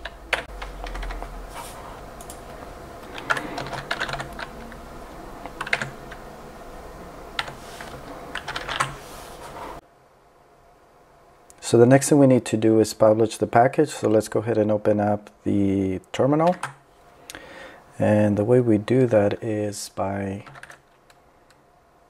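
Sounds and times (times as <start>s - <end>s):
keyboard typing: 0.0s - 1.4s, 2.2s - 4.8s, 5.4s - 6.2s, 7.4s - 9.0s, 20.4s - 21.2s
faint steady hum: 0.0s - 22.0s.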